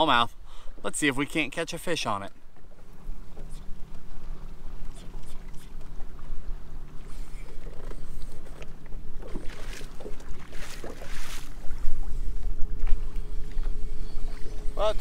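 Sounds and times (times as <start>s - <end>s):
low steady hum: 0.0s - 15.0s
water slapping against boat hull: 7.6s - 11.8s.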